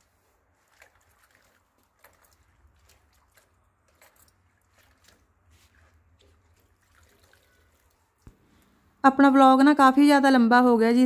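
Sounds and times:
hands splashing in water: 0.0s - 8.4s.

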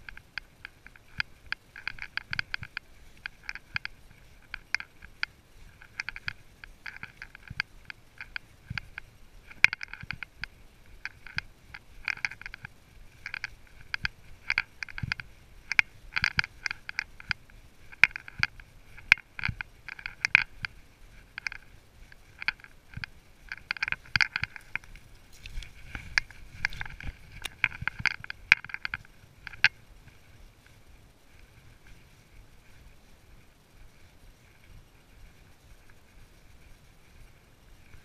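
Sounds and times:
horse tack clinking: 21.4s - 29.8s.

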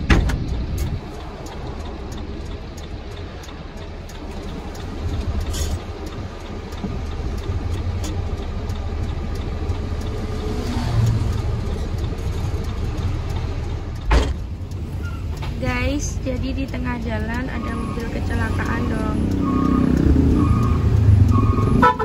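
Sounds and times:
truck engine and tyres rumbling: 0.0s - 22.0s
sharp thump: 14.1s - 14.4s.

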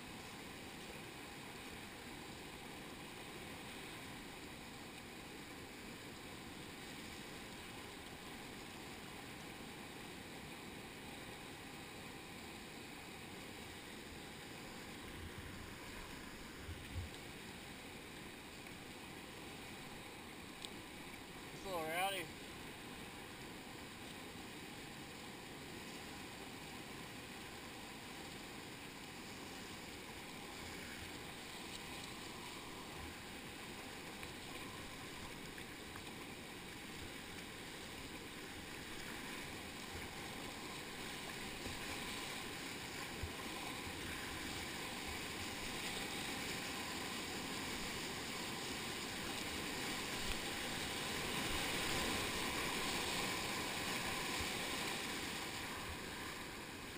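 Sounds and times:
whitewater rushing: 11.0s - 24.0s, 25.8s - 56.9s.

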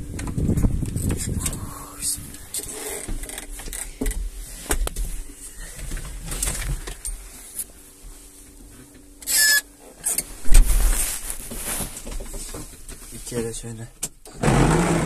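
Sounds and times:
rustling and small knocks: 2.4s - 9.1s, 9.8s - 14.2s
short squeak: 9.2s - 9.7s
heavy thump: 10.4s - 12.4s.

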